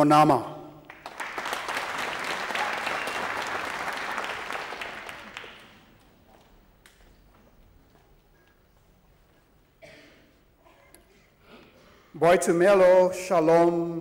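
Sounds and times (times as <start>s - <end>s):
audience applauding: 0.9s - 6.1s.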